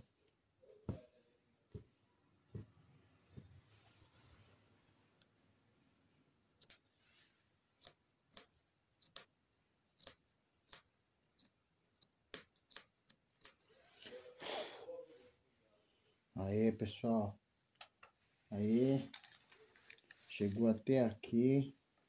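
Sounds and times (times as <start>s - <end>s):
scissors snipping thread: 6.6s - 6.9s, 7.8s - 9.3s, 10.0s - 13.7s.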